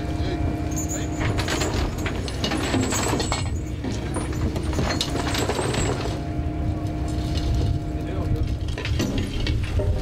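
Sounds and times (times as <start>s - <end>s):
boat engine droning: 0.0s - 10.0s
fishing gear clinking and knocking: 0.7s - 6.3s.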